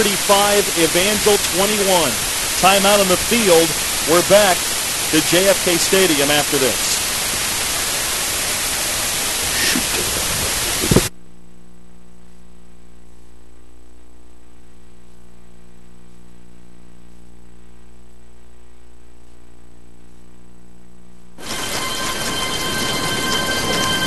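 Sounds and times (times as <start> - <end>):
loud hiss: 0.0 - 11.1, 21.4 - 24.0
buzzing electrical hum: 0.0 - 24.0.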